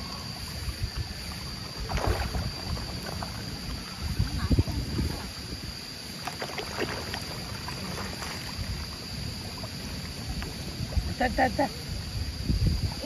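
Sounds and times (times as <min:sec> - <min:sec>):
fish thrashing and splashing: 0:01.6 - 0:03.7, 0:06.1 - 0:09.0.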